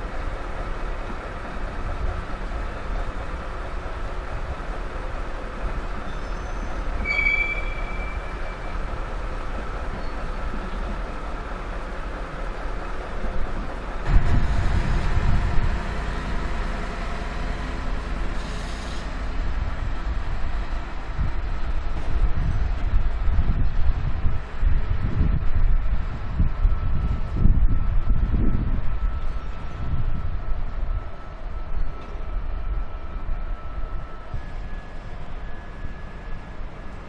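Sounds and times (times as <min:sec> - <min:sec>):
train wheels rumbling on track: 0:00.0 - 0:37.0
high wheel squeal: 0:06.0 - 0:08.9
heavy low rumble: 0:07.6 - 0:34.7.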